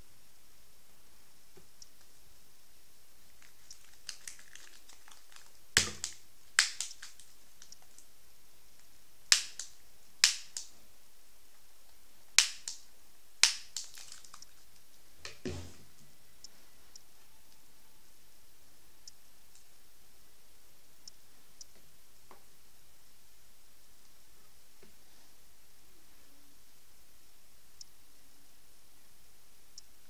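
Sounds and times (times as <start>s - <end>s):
cardboard airgun snapping: 5.8s - 7.2s, 9.3s - 10.7s, 12.4s - 12.8s
dull knock: 15.3s - 15.8s.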